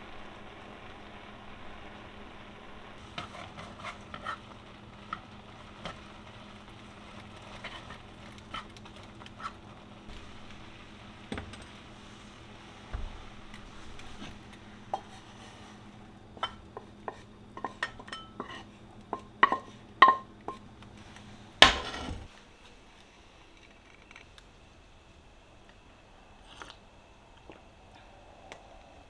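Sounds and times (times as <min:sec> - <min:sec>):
frying pan sizzle: 0:00.0 - 0:22.4
kitchenware clinking: 0:16.4 - 0:20.6.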